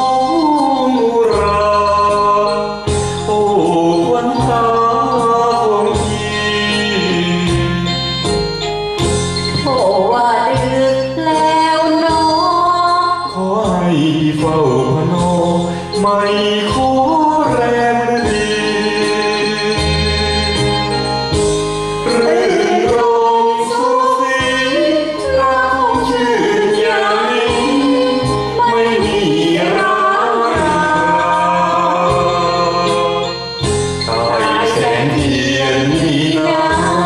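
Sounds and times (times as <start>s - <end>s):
woman and man singing duet: 0.0s - 8.0s, 9.6s - 20.7s, 22.1s - 37.0s
backing track with bass notes: 0.0s - 37.0s.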